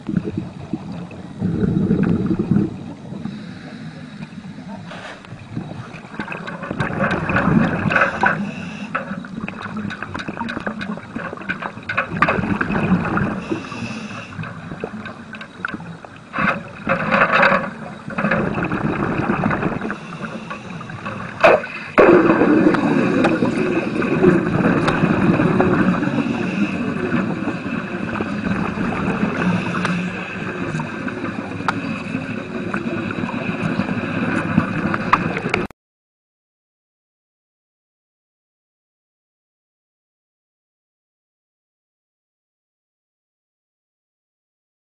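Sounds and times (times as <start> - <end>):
underwater bubbling and gurgling: 0.0 - 35.7.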